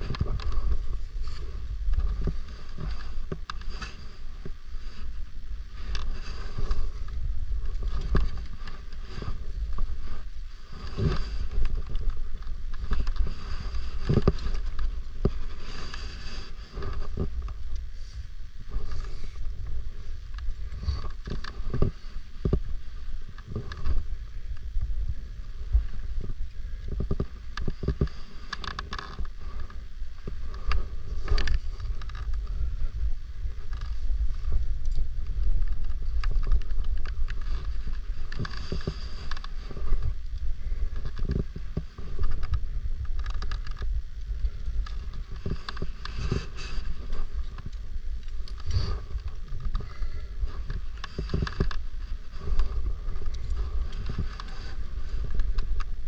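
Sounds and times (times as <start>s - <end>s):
wind buffeting microphone: 0.0s - 56.0s
knocks and scrapes: 48.4s - 56.0s.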